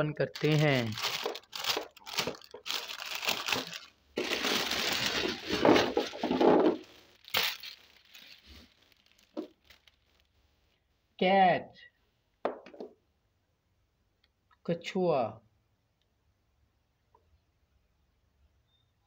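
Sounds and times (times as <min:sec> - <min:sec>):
plastic bag crinkling: 0:00.2 - 0:10.4
plastic toys clattering on table: 0:00.4 - 0:10.0.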